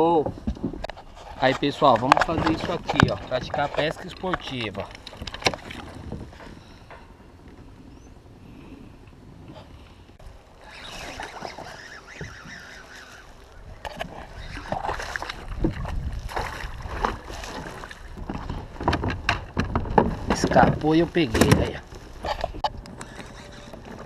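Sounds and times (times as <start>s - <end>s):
faint wash of water: 10.5s - 18.2s
fish thrashing and splashing water: 10.6s - 18.8s.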